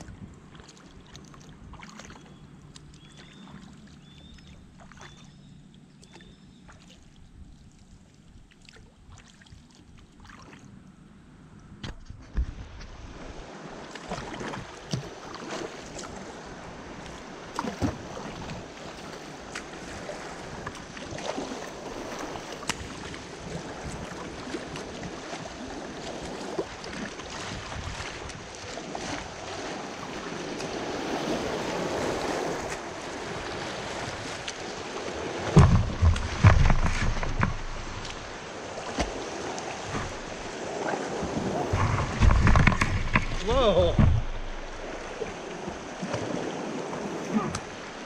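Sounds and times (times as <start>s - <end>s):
water rushing and splashing: 0.0s - 5.3s, 12.5s - 48.0s
hull striking rock thumps: 35.5s - 38.3s, 41.7s - 45.4s.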